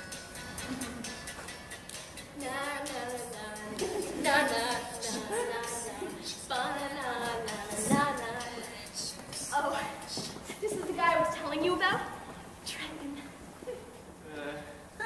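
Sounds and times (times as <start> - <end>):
woman singing: 2.4 - 12.0.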